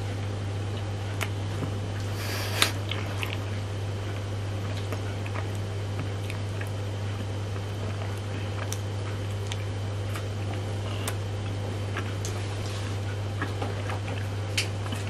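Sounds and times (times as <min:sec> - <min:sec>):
steady low hum: 0:00.0 - 0:15.0
wet mouth clicks chewing: 0:00.7 - 0:12.4.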